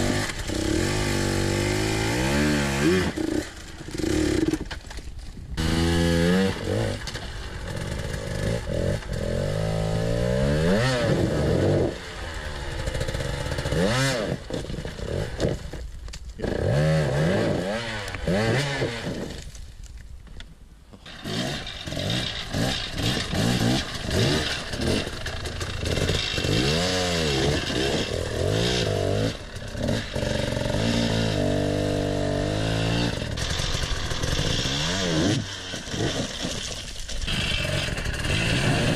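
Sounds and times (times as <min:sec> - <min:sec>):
dirt bike engines revving: 0:00.0 - 0:04.7, 0:21.0 - 0:36.6, 0:37.2 - 0:38.9.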